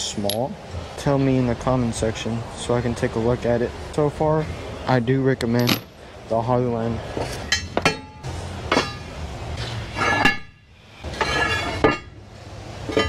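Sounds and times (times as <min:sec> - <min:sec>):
metal tools clanking: 0:05.5 - 0:05.9, 0:07.2 - 0:12.2.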